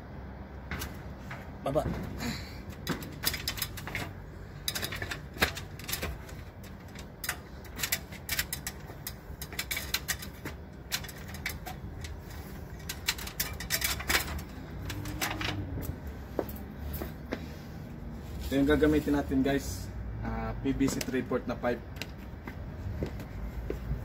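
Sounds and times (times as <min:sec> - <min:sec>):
low steady hum: 0:00.0 - 0:18.5
shoes knocking on steel frame: 0:00.6 - 0:12.0
keys jingling: 0:02.7 - 0:17.0.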